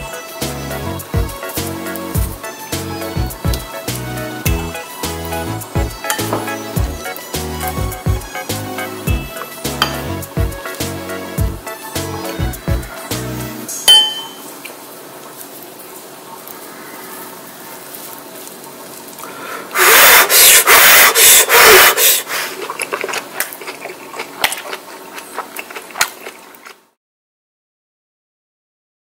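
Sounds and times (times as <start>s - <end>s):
faint steady hiss: 12.9s - 22.8s
person blowing breathy puffs: 19.2s - 22.6s.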